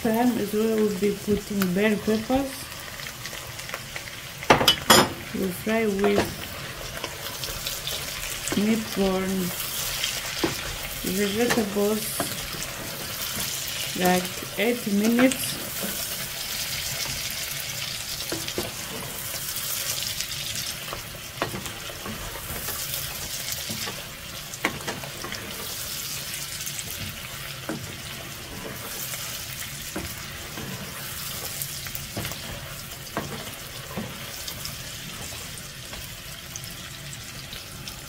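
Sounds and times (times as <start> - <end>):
food sizzling in oil: 0.0 - 38.0.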